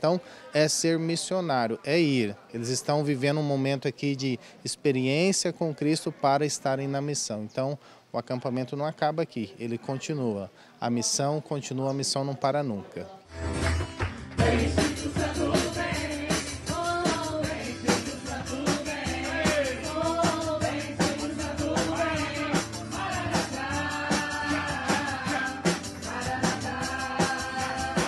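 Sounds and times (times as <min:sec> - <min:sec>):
band playing worship song: 0:14.0 - 0:28.0
people singing: 0:14.4 - 0:28.0.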